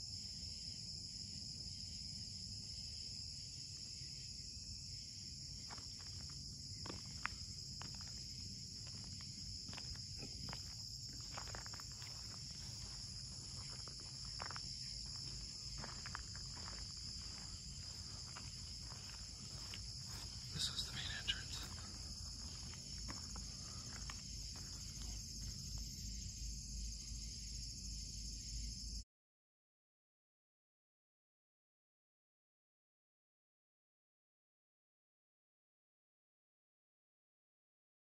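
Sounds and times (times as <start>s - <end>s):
crickets chirping: 0.0s - 29.0s.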